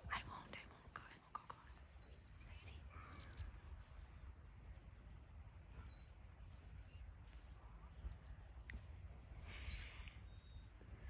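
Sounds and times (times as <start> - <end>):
faint bird chirps: 0.0 - 11.0
wind rumble on microphone: 0.0 - 11.0.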